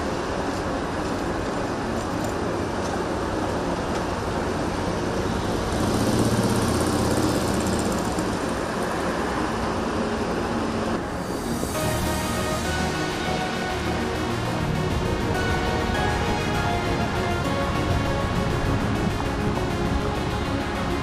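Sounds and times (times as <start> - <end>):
city street traffic: 0.0 - 21.0
motorcycle engine running: 4.9 - 8.9.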